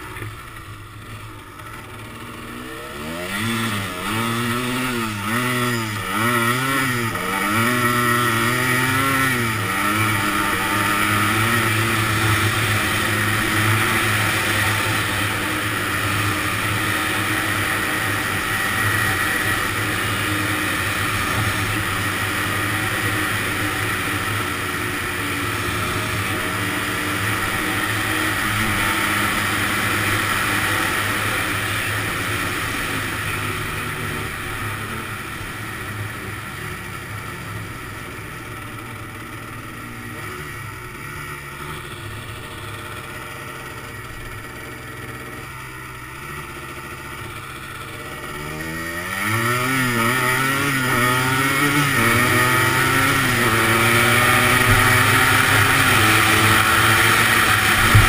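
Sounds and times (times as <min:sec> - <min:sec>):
two-stroke engine revving: 0:00.0 - 0:58.0.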